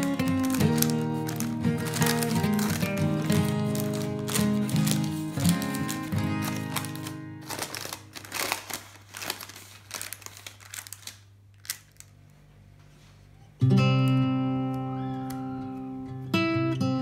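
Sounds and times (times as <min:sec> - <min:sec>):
background music: 0:00.0 - 0:07.9
loud guitar music: 0:00.0 - 0:08.2, 0:13.6 - 0:17.0
parchment paper crinkling: 0:00.0 - 0:13.3.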